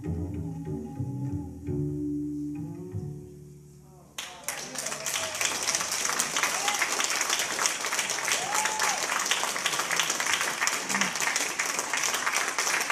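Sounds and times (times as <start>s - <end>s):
short cheers: 4.2s - 7.3s, 8.0s - 9.4s
audience applauding: 4.2s - 12.9s.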